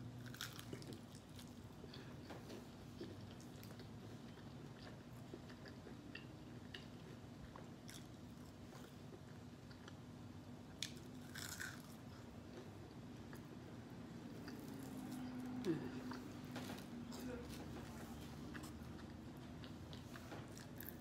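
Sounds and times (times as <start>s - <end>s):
chewing with wet mouth clicks: 2.9s - 8.1s.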